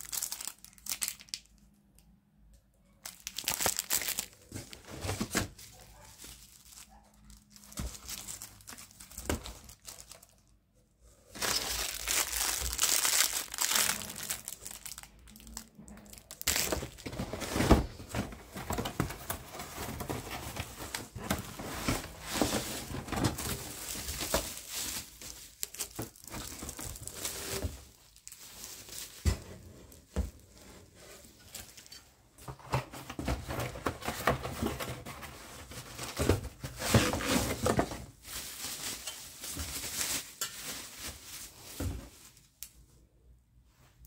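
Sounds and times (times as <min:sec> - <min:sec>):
plastic packaging crinkling: 0:00.0 - 0:01.7, 0:03.0 - 0:10.6, 0:11.3 - 0:29.4, 0:32.6 - 0:42.6
cardboard box rustling: 0:03.7 - 0:06.8, 0:16.4 - 0:27.9, 0:32.4 - 0:40.1.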